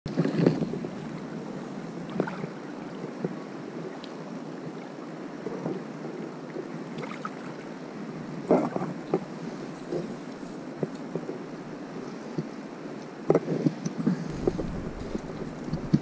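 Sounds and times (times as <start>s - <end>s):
wind rushing on microphone: 14.0s - 16.0s.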